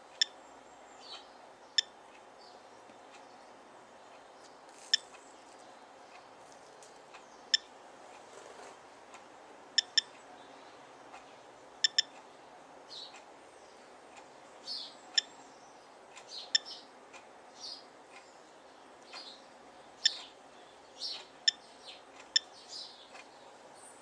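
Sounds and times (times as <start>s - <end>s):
dosimeter clicks: 11.8s - 12.2s
bird chirps: 14.6s - 16.9s, 20.0s - 24.0s.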